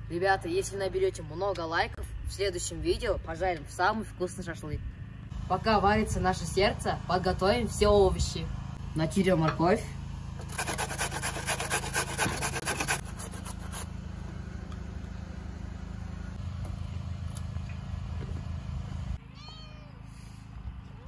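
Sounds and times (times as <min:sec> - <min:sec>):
steady low hum: 0:00.0 - 0:19.2
carrot scraping on a metal grater: 0:10.4 - 0:13.8
cat meowing: 0:19.3 - 0:20.0.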